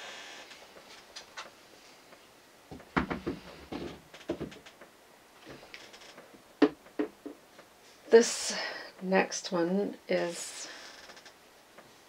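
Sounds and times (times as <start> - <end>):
wooden frame knocking: 2.7 - 4.6, 6.6 - 7.4.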